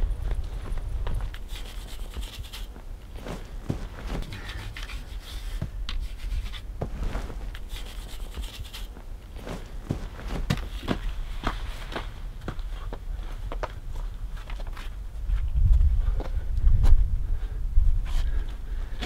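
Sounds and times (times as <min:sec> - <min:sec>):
steady low rumble: 0:00.0 - 0:19.0
stiff brush scrubbing stone: 0:01.4 - 0:02.7, 0:03.7 - 0:06.7, 0:07.6 - 0:09.0.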